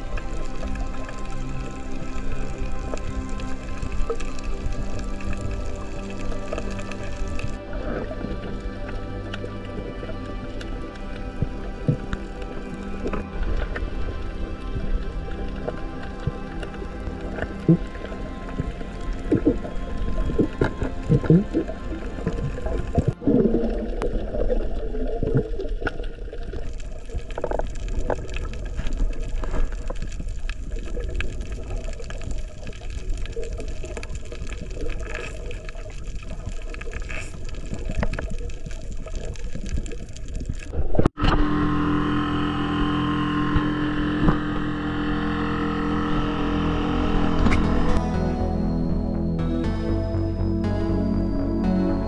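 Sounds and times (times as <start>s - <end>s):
dense crackle of small clicks: 0.0s - 40.8s
underwater water noise: 0.0s - 52.0s
water rushing past hull: 9.8s - 40.3s
outboard motor running: 41.2s - 50.9s.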